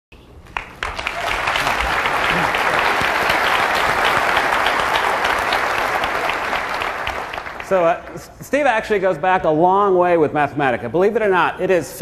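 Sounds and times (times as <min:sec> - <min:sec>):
audience applauding: 0:00.5 - 0:08.2.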